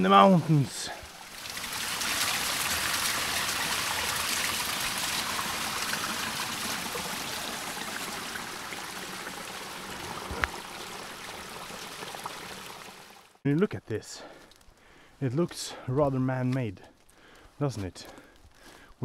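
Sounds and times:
water rushing: 0.0 - 13.4.

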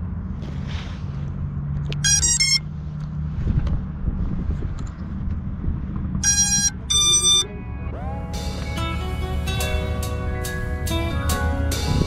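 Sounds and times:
car engines idling: 0.0 - 11.9
high-pitched tone bursts: 2.0 - 2.6, 6.2 - 7.6.

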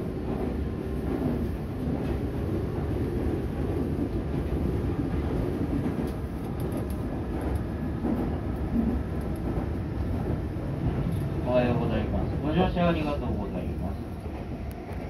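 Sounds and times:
electric train rumbling inside: 0.0 - 15.0.

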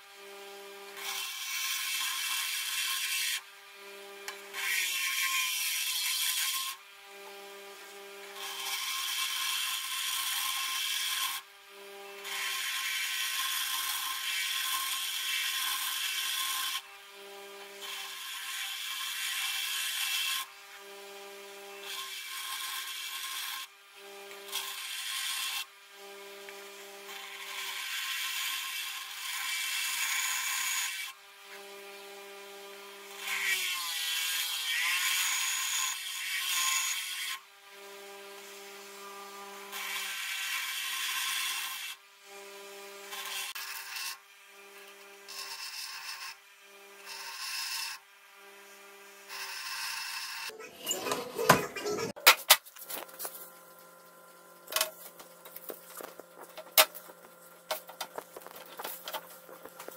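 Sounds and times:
bench grinder motor hum: 0.0 - 22.0, 53.0 - 59.9.

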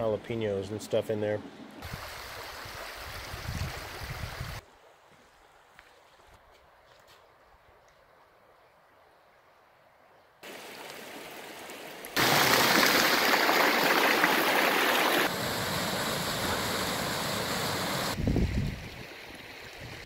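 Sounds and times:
stream and waterfalls rushing: 10.4 - 18.2.

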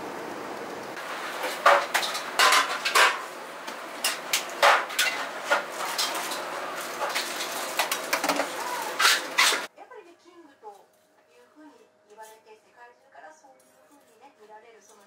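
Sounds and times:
pots utensils and dishes clanking: 1.0 - 9.7.

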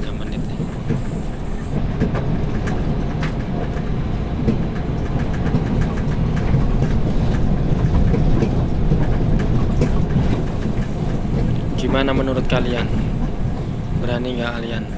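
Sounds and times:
diesel truck engine rumble: 0.0 - 14.9
clicks and rattles: 2.0 - 13.7.

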